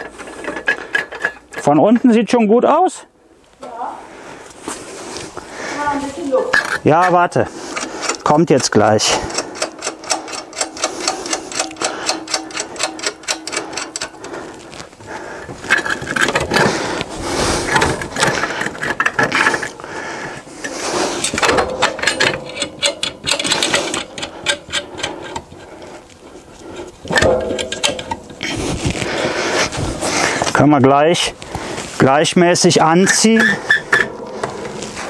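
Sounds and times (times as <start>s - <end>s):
rapid metallic clicks: 7.7s - 14.4s, 21.2s - 25.9s, 27.1s - 28.6s
metal clinks and knocks: 7.8s - 14.4s, 21.2s - 26.0s, 26.8s - 29.8s.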